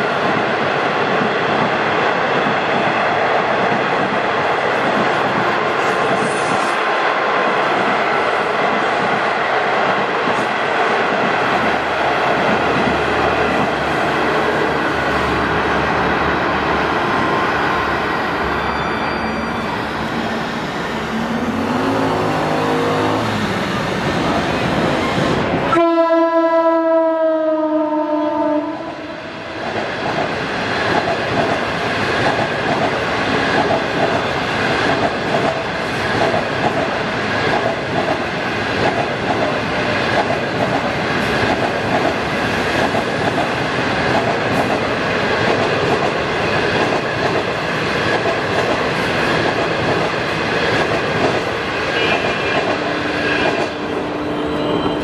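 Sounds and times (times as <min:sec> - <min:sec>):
clickety-clack of coaches: 0:03.6 - 0:06.8, 0:08.6 - 0:13.8, 0:29.6 - 0:53.9
locomotive horn blast: 0:21.7 - 0:23.3, 0:25.7 - 0:29.2, 0:51.9 - 0:55.0.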